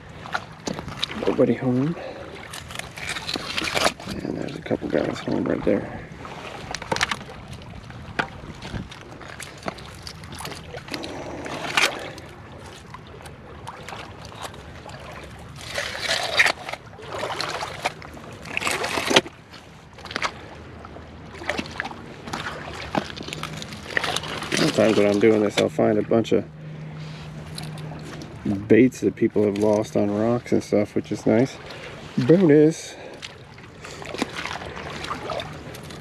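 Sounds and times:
shells and rocks clattering in mud: 0:02.5 - 0:04.6.

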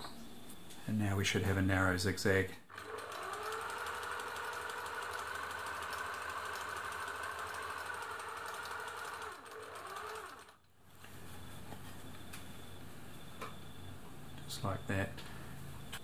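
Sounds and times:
sewing machine motor whine: 0:02.7 - 0:10.7.

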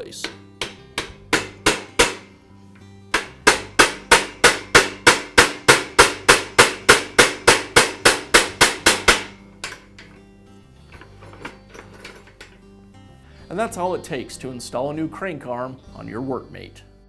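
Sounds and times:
hammer tapping steel pin: 0:00.2 - 0:10.2.

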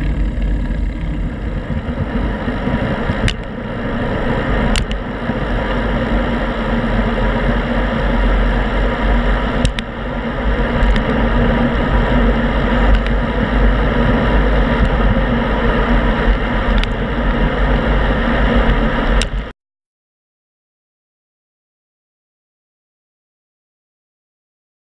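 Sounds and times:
road and tyre noise: 0:00.0 - 0:19.5
wind buffeting microphone: 0:00.0 - 0:19.5
sharp clicks from bumps: 0:03.0 - 0:03.5, 0:04.7 - 0:05.0, 0:09.6 - 0:09.9, 0:10.7 - 0:11.2, 0:12.8 - 0:13.2.

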